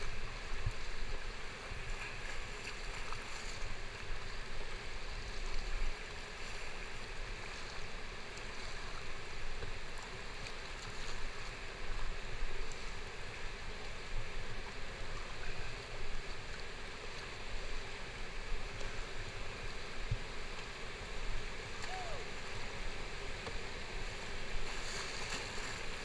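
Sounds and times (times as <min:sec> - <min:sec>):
whitewater rushing: 0:11.3 - 0:26.0.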